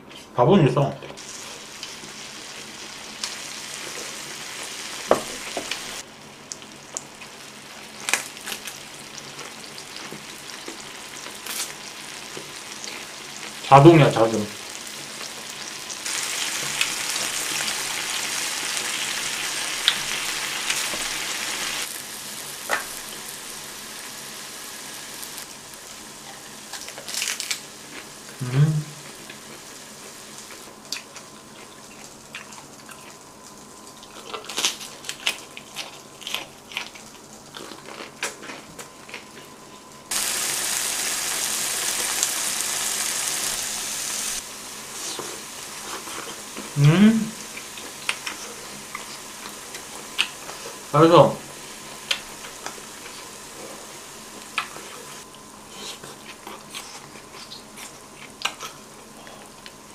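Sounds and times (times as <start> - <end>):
meat sizzling on griddle: 1.2 - 28.4, 29.0 - 30.7, 40.1 - 55.2.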